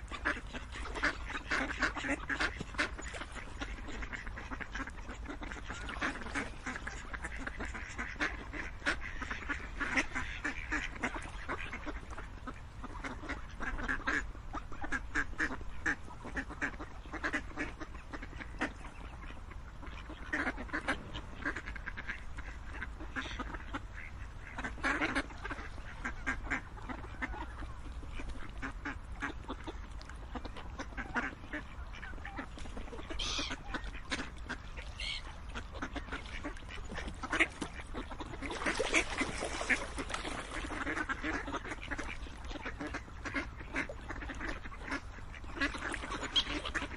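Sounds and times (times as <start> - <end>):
ducks quacking: 0.0 - 46.9
low rumble: 20.5 - 23.1.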